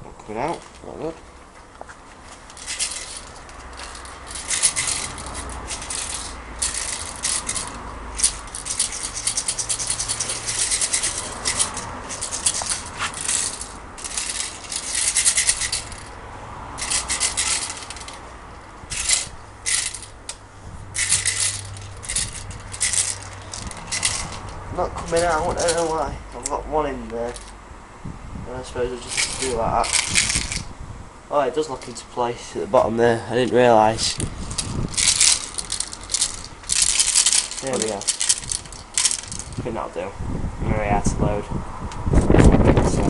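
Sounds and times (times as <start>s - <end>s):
plastic bbs rattling in magazine: 2.4s - 16.1s, 16.8s - 18.2s, 18.9s - 20.3s, 21.0s - 26.0s, 29.0s - 30.6s, 34.5s - 39.6s.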